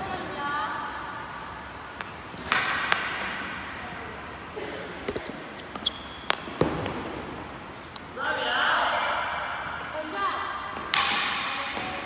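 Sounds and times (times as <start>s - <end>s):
balls hitting pads and goal: 1.9s - 3.7s, 5.0s - 12.0s
hockey sticks striking balls: 1.9s - 3.7s, 5.0s - 12.0s.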